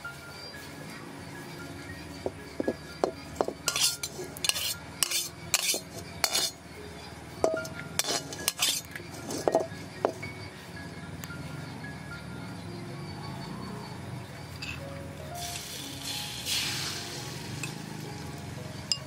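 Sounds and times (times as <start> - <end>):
metal spatula scraping a wok: 3.4 - 6.6, 7.4 - 10.2
ringing clinks against a pan: 7.4 - 10.2.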